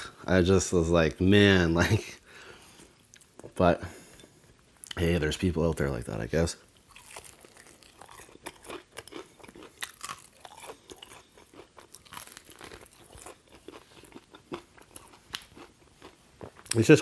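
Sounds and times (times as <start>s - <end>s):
crunching fried chicken: 6.9s - 17.0s.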